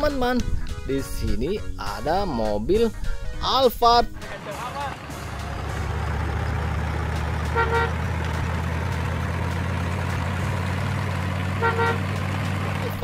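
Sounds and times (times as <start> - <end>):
car engine running: 4.2 - 13.0
car horn toot: 7.4 - 8.2, 11.5 - 12.1.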